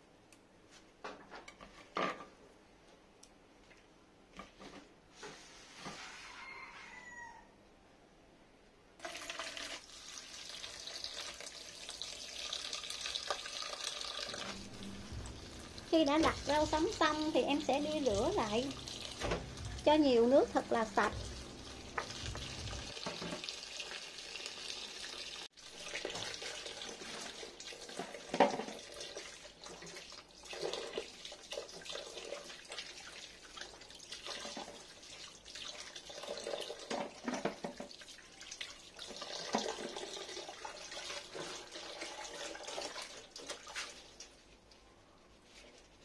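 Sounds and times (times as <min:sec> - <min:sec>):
tap water running into sink: 0:09.0 - 0:43.9.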